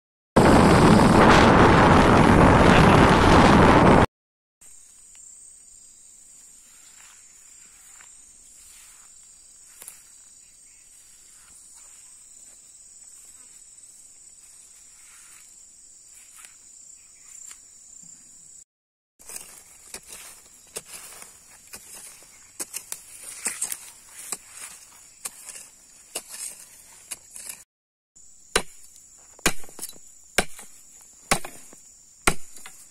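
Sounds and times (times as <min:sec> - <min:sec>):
wind rushing on microphone: 0:00.4 - 0:04.1
high-pitched insect drone: 0:04.6 - 0:18.6.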